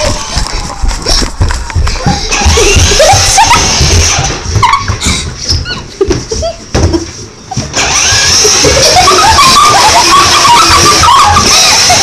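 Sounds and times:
toy motorcycle engine-revving effect: 7.8s - 12.0s.

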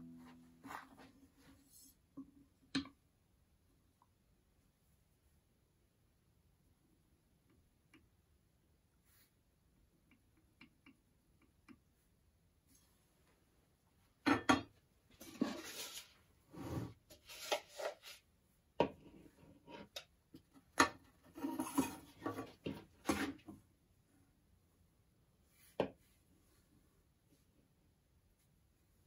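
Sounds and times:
tools scraping on workbench: 15.2s - 18.2s, 21.2s - 23.5s.

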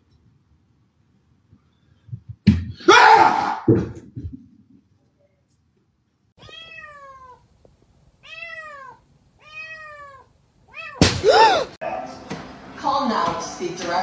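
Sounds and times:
cat meowing: 6.4s - 7.5s, 8.2s - 11.7s.

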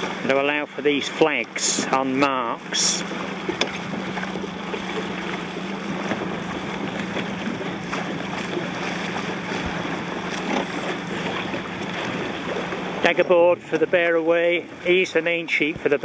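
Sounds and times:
water splashing around boat: 0.0s - 16.0s
wind buffeting microphone: 2.6s - 13.3s.

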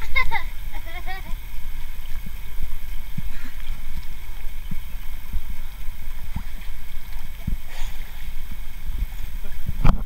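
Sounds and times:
soft low thumps: 0.0s - 10.0s
water sloshing and lapping: 0.0s - 10.0s
wind rumble on microphone: 0.0s - 10.0s.

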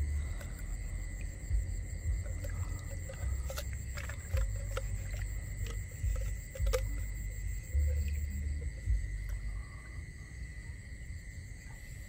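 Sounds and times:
water sloshing around wading person: 0.0s - 8.2s
high-pitched whine: 0.0s - 12.0s.

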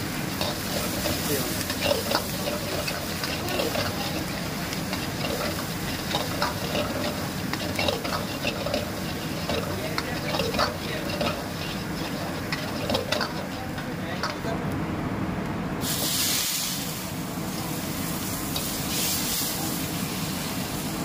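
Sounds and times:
gas burner rushing: 0.0s - 14.6s, 15.8s - 21.0s
light sizzle: 0.0s - 21.0s
metal ladle scraping a wok: 0.3s - 14.4s.

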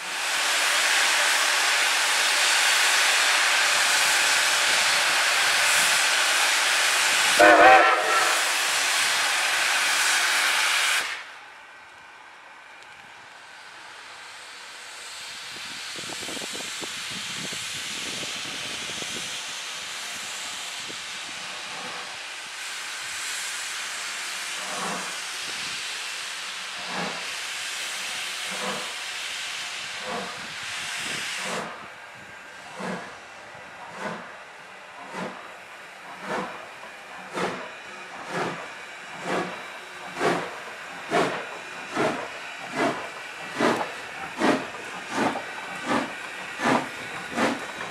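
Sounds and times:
steam hissing from cylinder cocks: 0.0s - 11.4s, 13.6s - 47.9s
steam locomotive exhaust chuffs: 0.0s - 11.4s, 13.0s - 47.9s.

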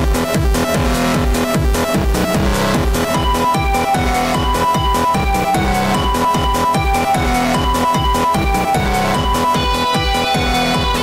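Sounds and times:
electronic dance music: 0.0s - 11.0s
kick drum: 0.0s - 11.0s
held synth notes: 0.6s - 11.0s.

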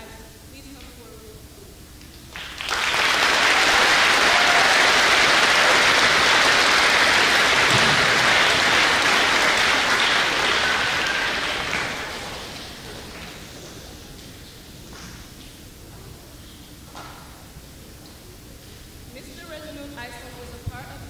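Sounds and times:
audience applauding: 2.3s - 14.3s.

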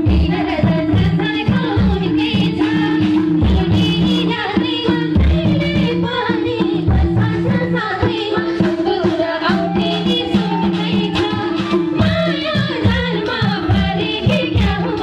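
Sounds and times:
low drum beat: 0.0s - 15.0s
sustained instrumental tones: 6.8s - 15.0s.

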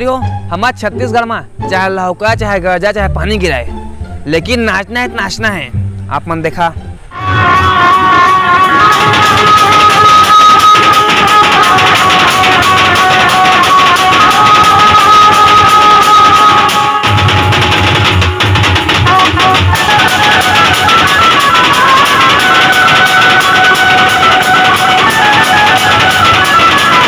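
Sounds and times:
loud music with regular beat: 7.5s - 27.0s.

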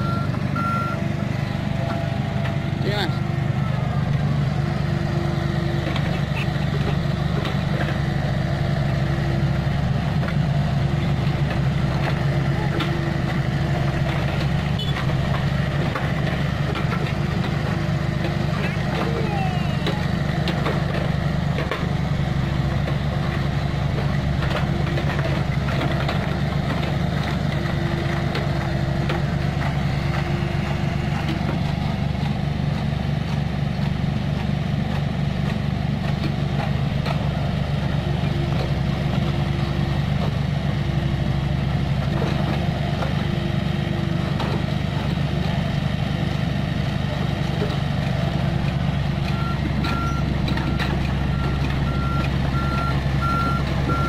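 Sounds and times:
reversing beeper: 0.0s - 1.0s, 49.3s - 54.0s
excavator diesel engine running: 0.0s - 54.0s.

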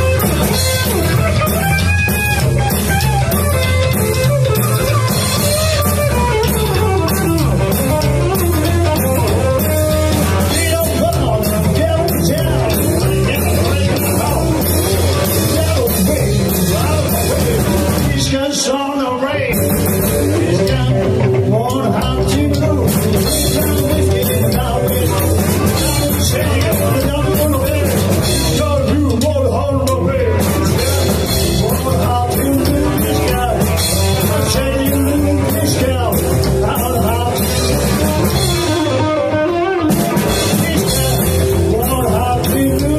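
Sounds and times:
rockabilly band playing: 0.0s - 42.9s.

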